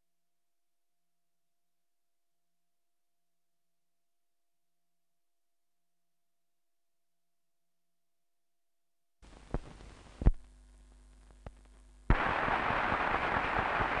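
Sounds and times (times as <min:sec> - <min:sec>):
faint low hum: 0:09.2 - 0:14.0
film clicks and pops: 0:09.4 - 0:14.0
loud rush of noise: 0:12.1 - 0:14.0.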